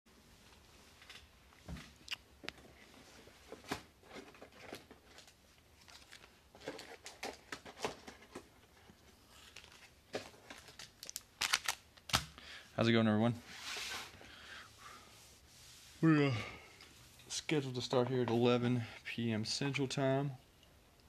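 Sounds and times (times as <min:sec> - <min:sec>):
crinkling: 0:00.4 - 0:12.6.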